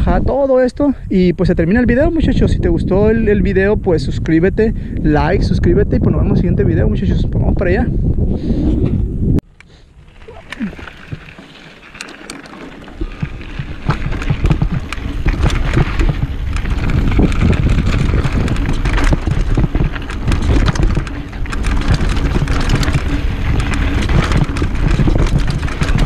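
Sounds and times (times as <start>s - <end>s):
wind on microphone: 0.0s - 12.1s, 12.8s - 26.0s
bike rattling over bumps: 8.6s - 26.0s
bike tyres crunching over gravel: 9.5s - 26.0s.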